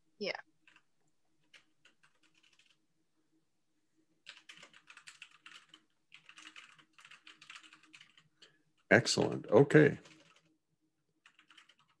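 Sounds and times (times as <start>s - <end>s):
typing on computer keyboard: 0.6s - 2.8s, 4.2s - 10.5s, 11.2s - 12.0s.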